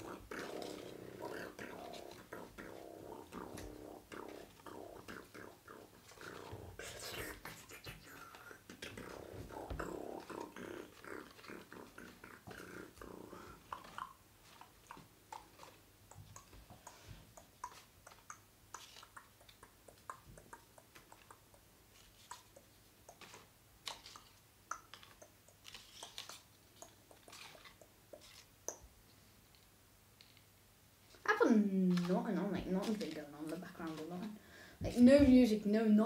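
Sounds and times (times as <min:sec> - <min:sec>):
paper rustling: 0:31.8 - 0:34.4.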